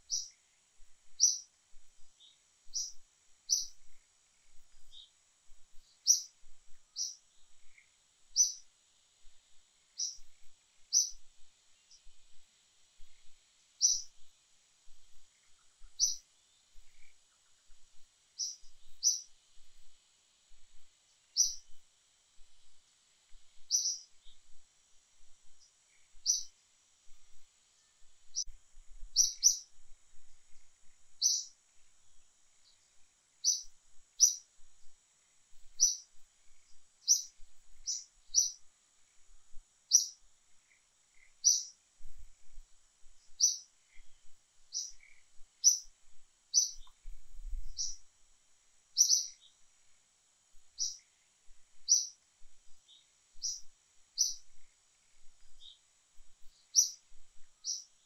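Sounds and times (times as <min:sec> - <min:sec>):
bird chirping: 0:00.0 - 0:01.5, 0:02.1 - 0:05.2, 0:05.8 - 0:08.7, 0:09.9 - 0:12.3, 0:13.0 - 0:14.3, 0:14.9 - 0:17.8, 0:18.4 - 0:19.4, 0:21.3 - 0:21.8, 0:23.5 - 0:24.6, 0:25.4 - 0:26.5, 0:27.3 - 0:29.8, 0:30.8 - 0:31.6, 0:32.5 - 0:34.5, 0:35.7 - 0:39.3, 0:39.9 - 0:41.8, 0:43.2 - 0:45.9, 0:46.5 - 0:48.1, 0:48.9 - 0:49.6, 0:50.7 - 0:51.2, 0:51.8 - 0:58.0
faint high hiss: 0:00.0 - 0:58.0.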